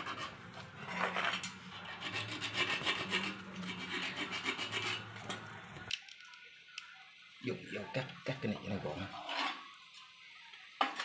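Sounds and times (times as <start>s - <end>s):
knife scraping metal tube: 0.0s - 5.2s.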